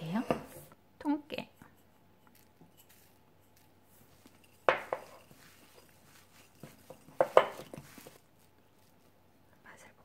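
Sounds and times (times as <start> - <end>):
ceramic bowl clattering: 1.7 - 8.2.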